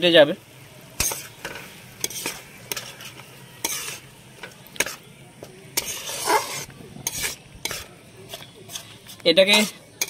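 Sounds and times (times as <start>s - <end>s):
light sizzle: 0.0s - 10.0s
spatula scraping thick paste: 2.0s - 4.1s, 5.8s - 9.9s.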